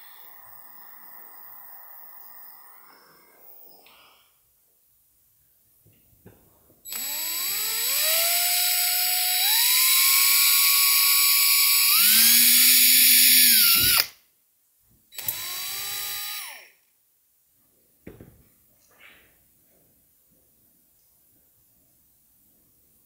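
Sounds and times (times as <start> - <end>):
cordless drill motor whine: 0.0 - 2.8, 6.9 - 14.1, 15.2 - 16.7.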